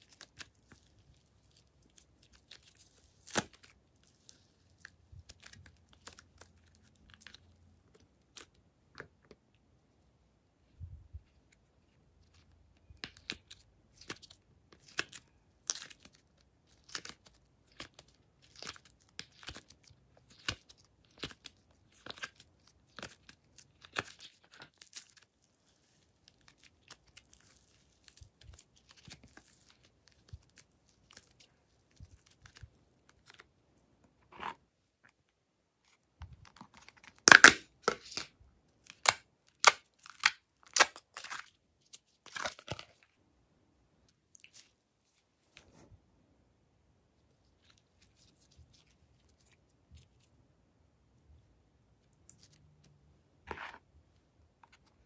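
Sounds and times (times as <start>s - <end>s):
slime crackling and popping: 0.0s - 7.4s.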